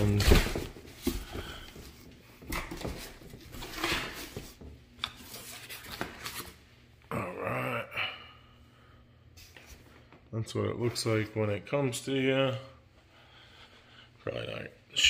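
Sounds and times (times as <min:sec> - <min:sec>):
cardboard boxes rustling and scraping: 0:00.0 - 0:06.5.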